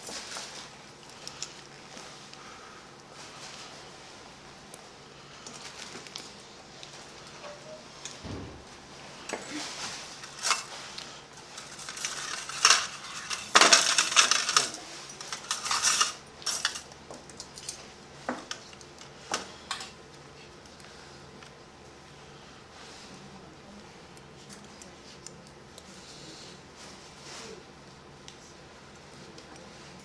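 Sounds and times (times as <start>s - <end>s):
metal instruments clinking: 11.6s - 17.8s.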